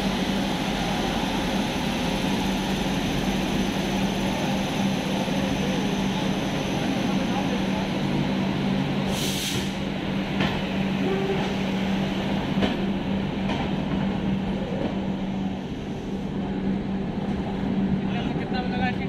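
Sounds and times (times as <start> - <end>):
train rumbling: 0.0 - 19.0
brief hiss: 9.1 - 9.8.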